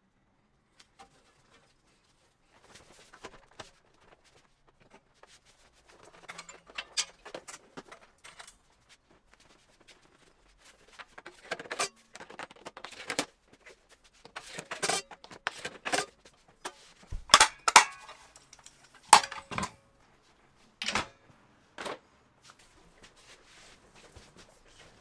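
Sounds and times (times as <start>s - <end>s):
metal clanks on welding cart: 17.3s - 19.8s.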